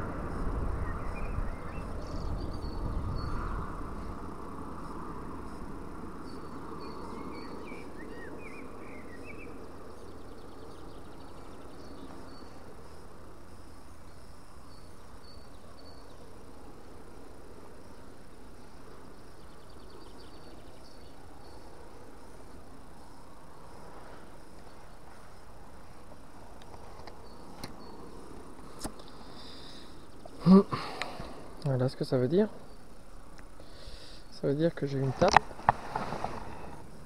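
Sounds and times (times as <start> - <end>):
wind on microphone: 0.0 - 4.5
bird chirps: 0.8 - 3.6, 6.2 - 12.7, 14.0 - 16.3, 19.0 - 21.8.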